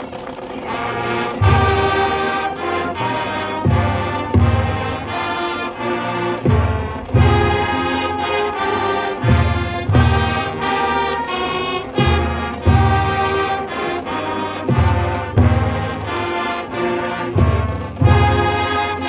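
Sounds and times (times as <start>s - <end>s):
marching band brass chords: 0.0s - 19.0s.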